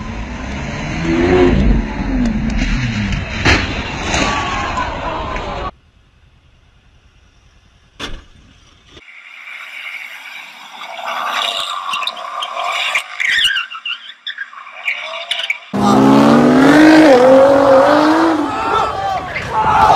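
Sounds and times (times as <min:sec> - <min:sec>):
sports car engine revving: 0:15.8 - 0:18.5.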